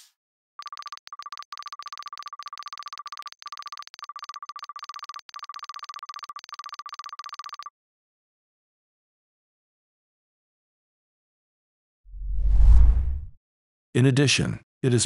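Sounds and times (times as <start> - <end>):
electronic typing ticks: 0.6 - 7.7.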